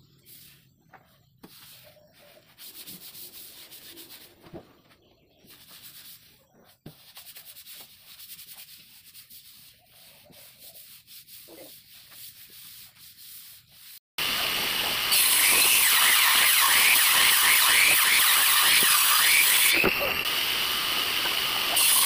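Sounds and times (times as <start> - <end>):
hands rubbing laminate sheet: 0.2 - 4.8, 5.4 - 14.0
loud steady hissing noise: 18.7 - 22.0.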